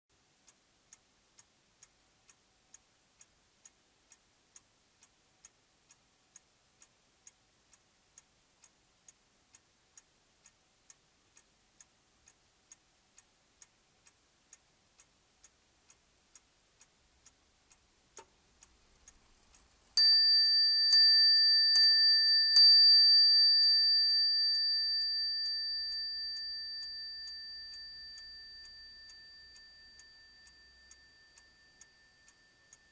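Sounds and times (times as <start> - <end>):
clock ticking: 0.4 - 32.9
clock hammer striking bell: 20.0 - 32.9.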